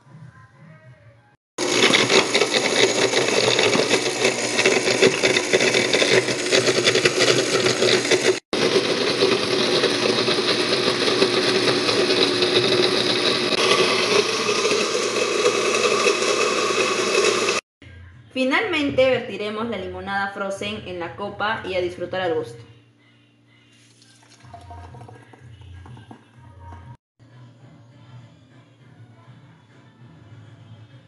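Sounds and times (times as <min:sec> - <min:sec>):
blender crushing ice: 0:01.6 - 0:17.6.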